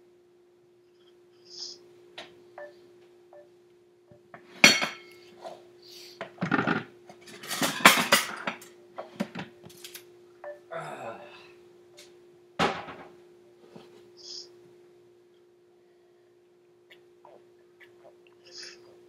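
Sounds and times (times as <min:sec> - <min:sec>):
pots pans and cutlery clattering: 0:04.5 - 0:05.2, 0:06.4 - 0:09.5.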